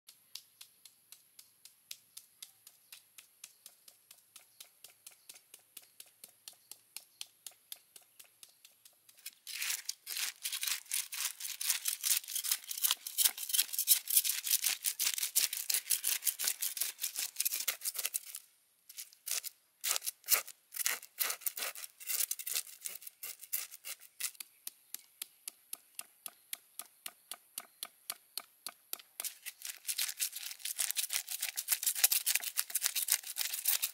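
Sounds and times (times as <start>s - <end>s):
knife scraping fish scales: 9.2s - 24.4s, 29.2s - 33.9s.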